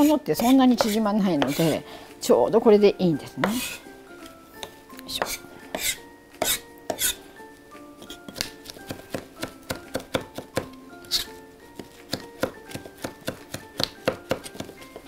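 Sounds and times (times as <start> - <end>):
knife chopping on wooden board: 0.0 - 1.8, 3.4 - 3.8, 4.6 - 7.2, 8.0 - 15.0
light background music: 0.0 - 15.0.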